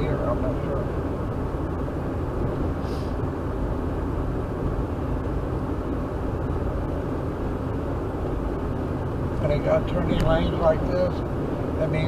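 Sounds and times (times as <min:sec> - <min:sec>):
road and engine noise in car cabin: 0:00.0 - 0:12.0.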